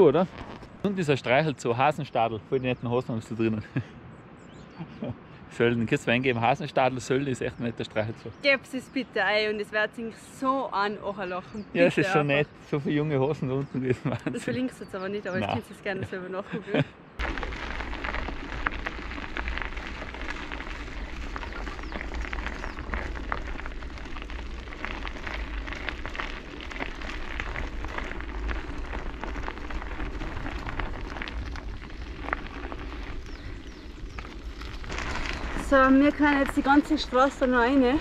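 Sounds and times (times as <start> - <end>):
bike tyres crackling on gravel: 0.0 - 3.8, 15.4 - 15.6, 17.2 - 38.0
wind rumble on microphone: 16.7 - 38.0.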